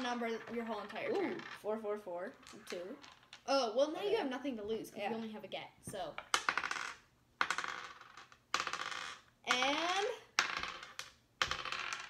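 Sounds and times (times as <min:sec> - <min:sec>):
dice clattering on wooden table: 0:00.0 - 0:03.5, 0:06.0 - 0:12.0.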